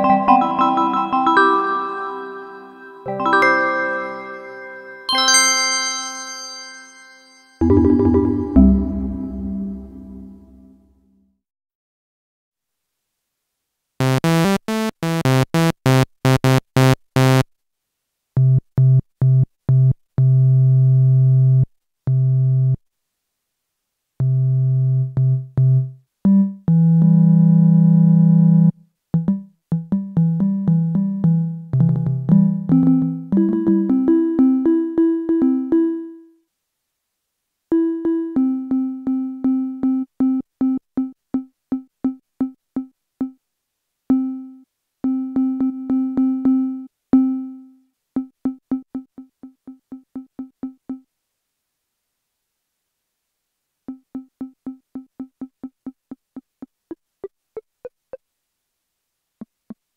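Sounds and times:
synthesizer notes: 0:07.6 - 0:10.7, 0:14.0 - 0:17.4.

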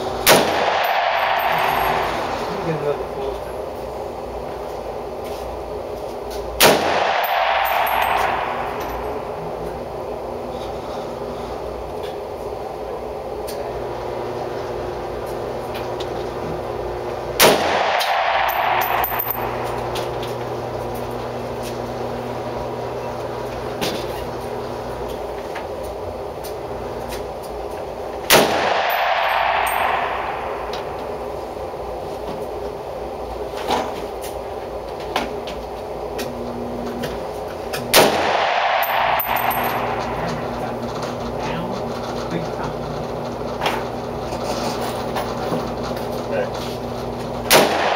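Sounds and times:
shooting range background noise: 0:00.0 - 0:47.9
steady background hum: 0:00.0 - 0:47.9
loud gunshot indoors: 0:00.2 - 0:02.2, 0:06.6 - 0:08.8, 0:17.4 - 0:19.2, 0:28.3 - 0:30.7, 0:37.9 - 0:39.6, 0:47.5 - 0:47.9
rifle shot with echo: 0:00.3 - 0:02.1, 0:06.6 - 0:09.3, 0:17.4 - 0:19.2, 0:28.3 - 0:31.0, 0:37.9 - 0:40.0, 0:47.5 - 0:47.9.

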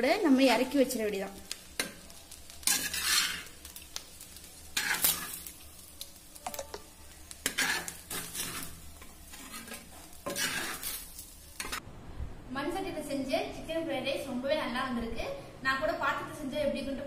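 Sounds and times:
light sizzle: 0:00.0 - 0:17.0
spoon scraping clay pot: 0:02.7 - 0:03.5, 0:07.4 - 0:11.0.

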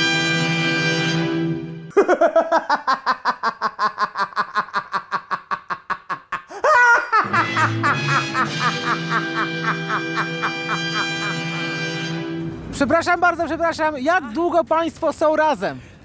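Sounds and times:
music: 0:00.0 - 0:01.9, 0:07.2 - 0:12.8
staccato laughter: 0:01.9 - 0:11.8.

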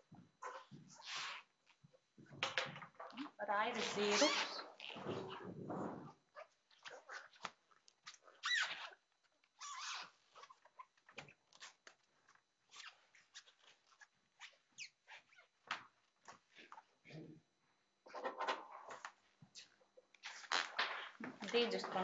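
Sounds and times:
short falling squeaks: 0:08.4 - 0:09.0.

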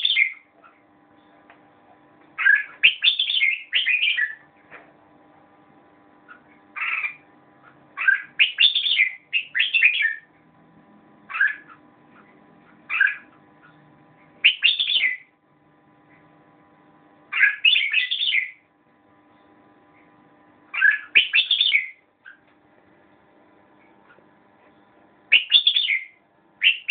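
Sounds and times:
bird singing warbled phrases: 0:00.0 - 0:00.5, 0:02.4 - 0:04.5, 0:06.3 - 0:07.2, 0:08.0 - 0:10.3, 0:11.3 - 0:13.8, 0:14.4 - 0:15.3, 0:17.3 - 0:18.7, 0:20.7 - 0:22.4, 0:25.3 - 0:26.9
faint steady hum: 0:00.0 - 0:26.9.

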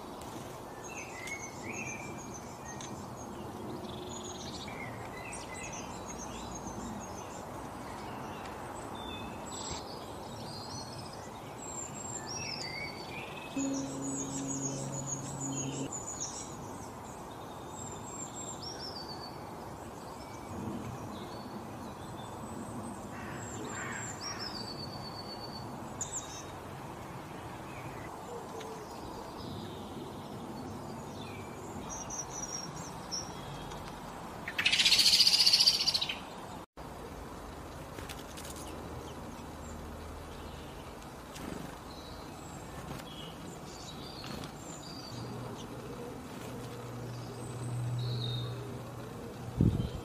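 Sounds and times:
steady background hiss: 0:00.0 - 0:30.0
small songbirds chirping: 0:00.0 - 0:50.0.

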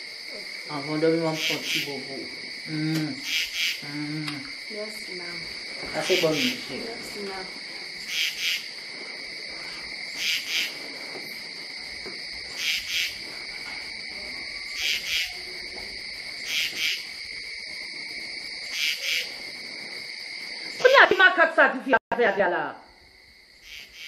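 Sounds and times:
high cricket trill: 0:00.0 - 0:24.0
insect double chirp: 0:00.0 - 0:24.0.

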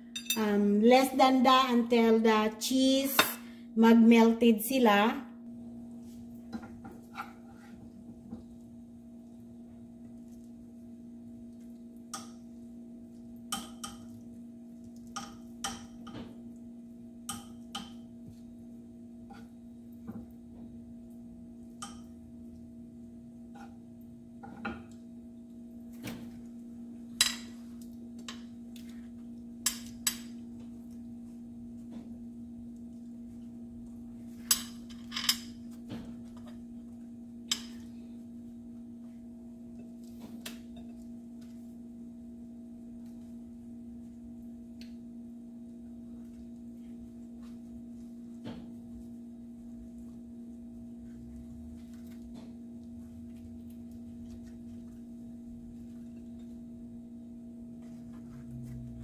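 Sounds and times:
utensils clinking against dishes: 0:00.1 - 0:00.5.

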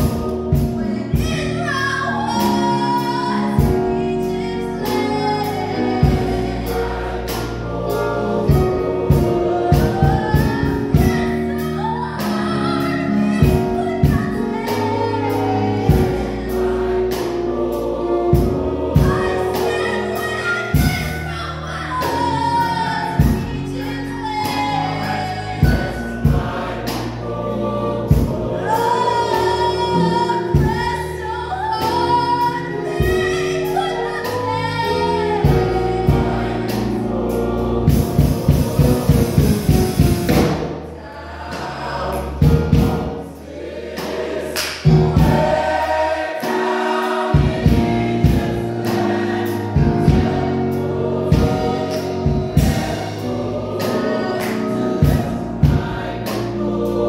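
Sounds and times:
gospel choir singing: 0:00.0 - 0:57.0
steady percussive beat: 0:18.2 - 0:21.2, 0:37.8 - 0:56.6.

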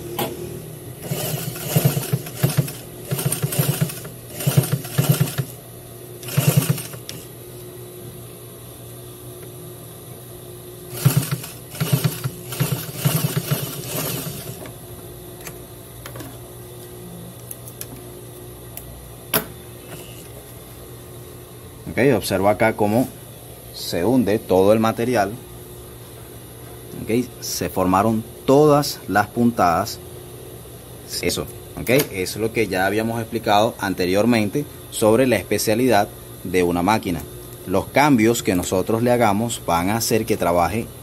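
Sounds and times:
sewing machine motor humming: 0:01.0 - 0:05.6, 0:06.2 - 0:07.3, 0:10.9 - 0:14.7
sewing machine stitching: 0:01.0 - 0:05.6, 0:06.2 - 0:07.3, 0:10.9 - 0:14.7.

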